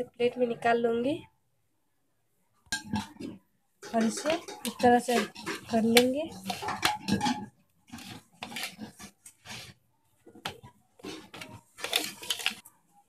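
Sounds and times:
dough rubbing and scraping on plate: 2.8 - 12.8.

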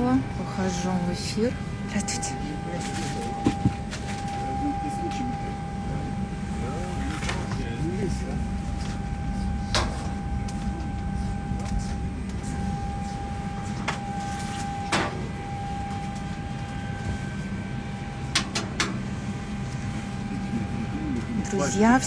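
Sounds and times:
cabin ventilation hum: 0.0 - 22.0
thin steady whine: 0.0 - 22.0.

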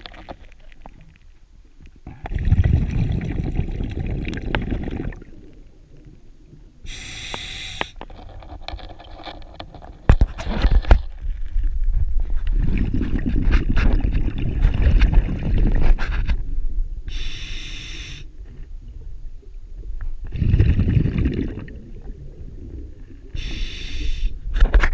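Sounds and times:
exhaled bubbles rumbling: 2.0 - 6.8, 10.6 - 17.1, 18.3 - 23.5
diver breathing through regulator: 6.9 - 8.0, 17.1 - 18.3, 23.3 - 24.4.

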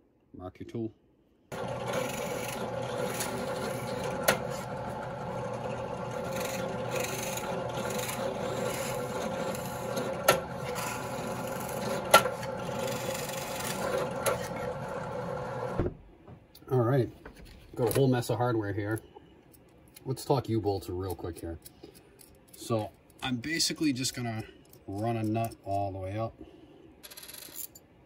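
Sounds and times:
drill press cutting through plywood: 1.5 - 15.8.

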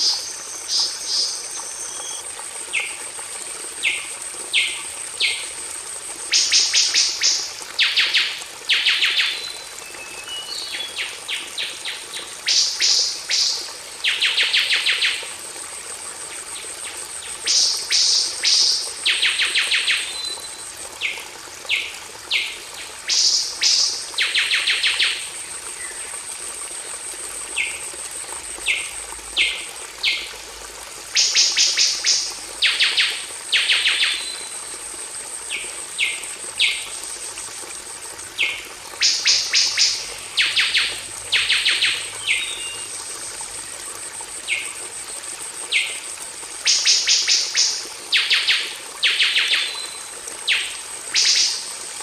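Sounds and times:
high insect tone: 0.0 - 3.0, 3.8 - 30.5, 31.1 - 51.9
flowing water hiss: 0.0 - 52.0.

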